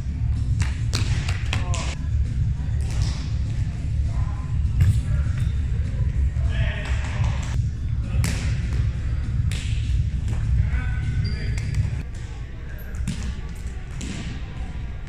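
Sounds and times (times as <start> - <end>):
low hall rumble: 0.0 - 15.0
ball slaps: 0.6 - 2.0, 2.8 - 3.3, 8.2 - 8.8, 9.4 - 10.5, 13.0 - 14.5
scattered voices: 1.4 - 9.3.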